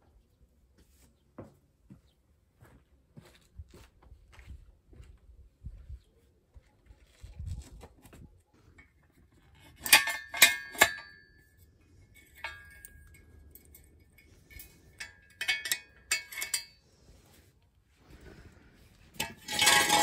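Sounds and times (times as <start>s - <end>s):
metal jack stand clanking: 8.8s - 16.8s, 19.1s - 20.0s.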